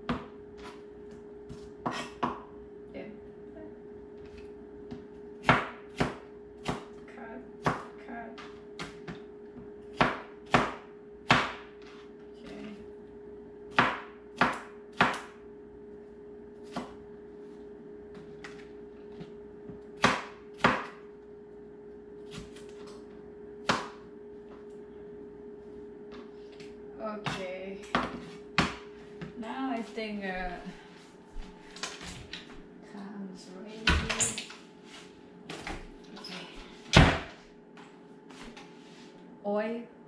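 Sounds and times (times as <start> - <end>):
faint steady hum: 0.0 - 40.0
knife chopping on cutting board: 1.5 - 2.4, 28.0 - 28.8.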